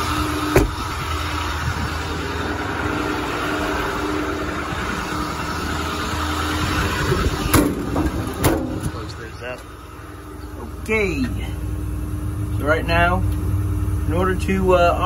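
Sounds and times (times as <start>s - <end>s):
steady hydraulic hum: 0.0s - 12.6s
diesel engine idling: 0.0s - 15.0s
truck door shutting: 0.4s - 1.1s, 7.0s - 9.7s.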